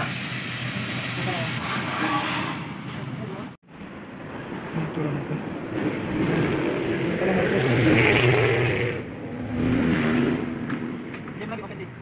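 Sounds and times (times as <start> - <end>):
vehicle engine passing by: 4.9 - 11.5.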